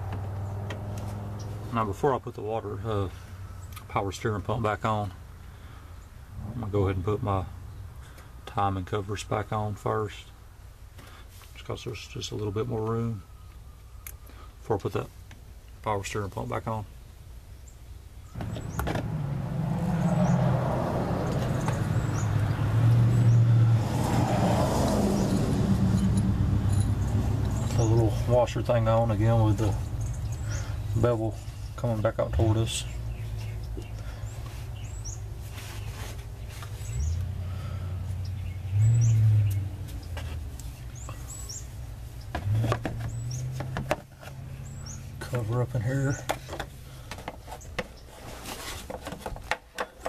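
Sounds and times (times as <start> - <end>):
vehicle engine humming: 0.0 - 2.2, 18.2 - 48.1
small birds chirping: 0.3 - 8.7, 10.2 - 19.0, 19.9 - 23.6, 26.7 - 48.3.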